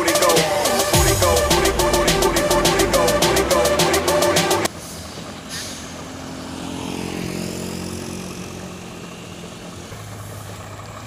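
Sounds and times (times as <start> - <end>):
truck diesel engines under load: 0.0 - 11.0
motor scooter passing: 2.8 - 11.0.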